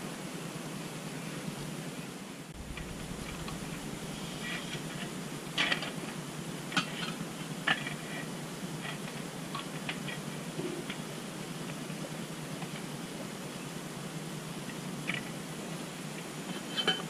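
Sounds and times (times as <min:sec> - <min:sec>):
steady background hiss: 0:00.0 - 0:17.0
clinks of utensils being handled: 0:16.7 - 0:17.0.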